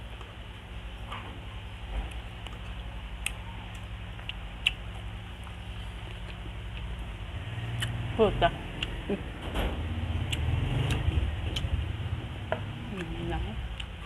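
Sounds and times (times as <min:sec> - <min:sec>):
chewing mouth sounds: 0:02.5 - 0:07.0.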